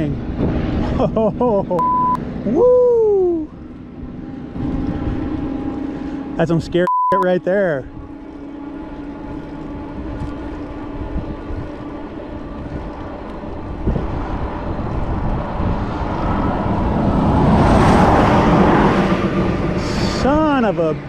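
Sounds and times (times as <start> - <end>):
vehicle passing close by: 3.5 - 6.8, 7.8 - 21.0.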